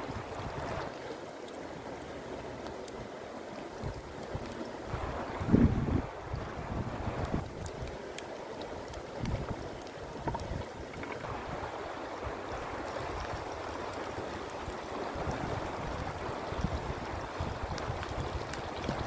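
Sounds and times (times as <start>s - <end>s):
wind rumbling on microphone: 0.0s - 1.0s, 3.7s - 19.0s
shallow river running: 0.0s - 19.0s
faint ticks: 7.3s - 11.3s.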